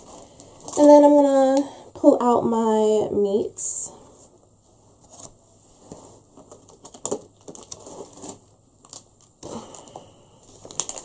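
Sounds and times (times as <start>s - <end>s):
plastic packages rustling: 0.0s - 1.7s, 5.0s - 11.0s.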